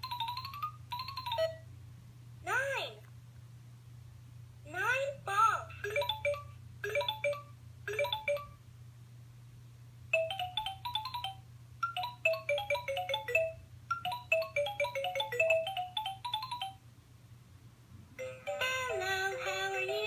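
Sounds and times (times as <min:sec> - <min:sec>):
toy phone beeping tune: 0:00.0 - 0:01.6, 0:05.8 - 0:08.6, 0:10.2 - 0:16.8, 0:18.2 - 0:20.0
faint low hum: 0:00.0 - 0:20.0.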